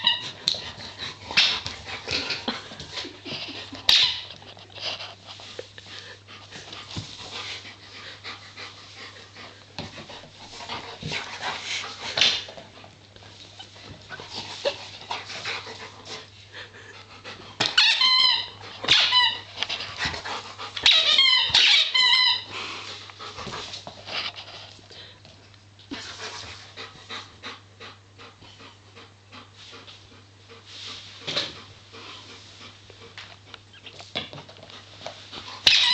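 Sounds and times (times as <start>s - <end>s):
squeaky toy squeaking: 0.0s - 0.2s, 17.8s - 19.5s, 20.8s - 22.5s, 35.6s - 35.9s
dog panting: 0.2s - 17.7s, 18.5s - 21.4s, 22.5s - 25.2s, 25.9s - 33.8s.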